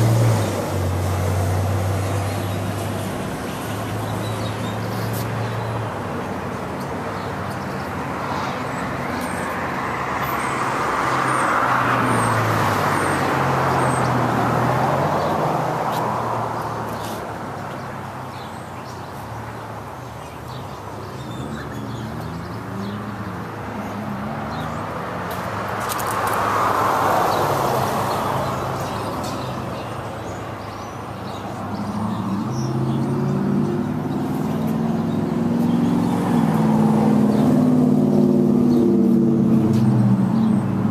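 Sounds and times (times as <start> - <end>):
vehicle rushing past: 31.6 - 40.9.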